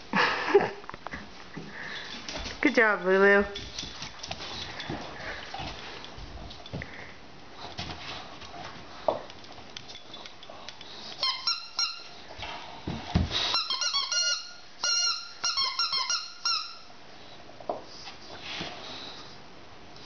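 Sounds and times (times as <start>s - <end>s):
squeaky toy squeaking: 11.2s - 12.2s, 13.5s - 16.9s.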